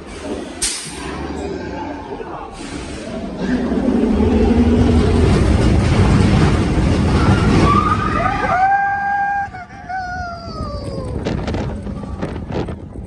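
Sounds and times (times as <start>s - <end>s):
roller coaster rumbling on track: 0.0s - 13.0s
riders screaming: 7.1s - 12.2s.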